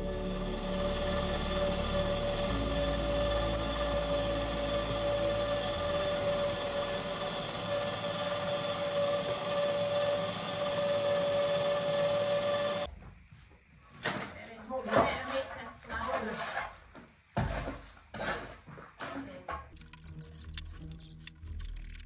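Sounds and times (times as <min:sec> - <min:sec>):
cement mixer motor hum: 0:00.0 - 0:12.9
cement mixer whine: 0:00.0 - 0:12.9.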